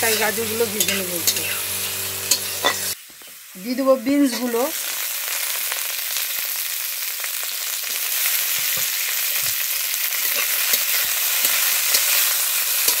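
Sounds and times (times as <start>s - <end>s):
metal spatula scraping pan: 0.0s - 3.0s
vegetables sizzling in oil: 0.0s - 13.0s.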